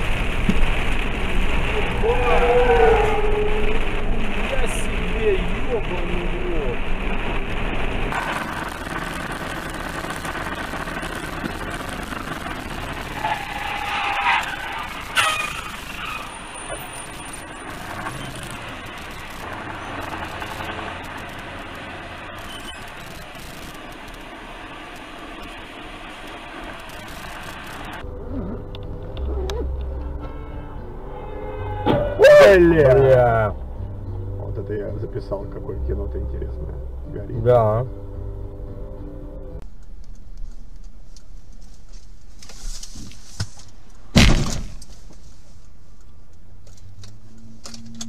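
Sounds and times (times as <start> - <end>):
low engine hum: 0.0 - 13.8, 16.6 - 42.4
road and engine noise in vehicle: 0.0 - 48.0
loud crash impact: 44.1 - 44.8.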